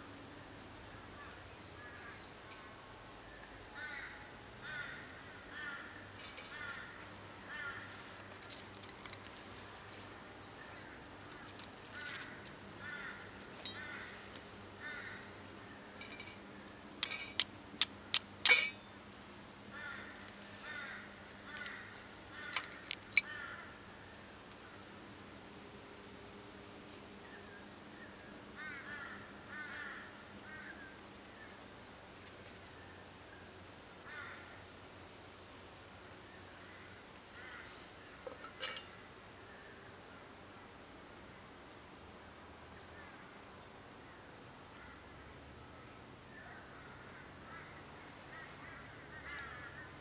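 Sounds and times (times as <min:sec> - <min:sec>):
crow cawing: 0:03.8 - 0:08.0, 0:12.0 - 0:15.4, 0:19.7 - 0:23.7, 0:28.6 - 0:30.9, 0:34.0 - 0:34.6, 0:37.4 - 0:37.8, 0:46.6 - 0:50.0
handling clicks and knocks: 0:08.2 - 0:09.5, 0:11.3 - 0:12.6, 0:16.0 - 0:18.8, 0:20.1 - 0:23.3.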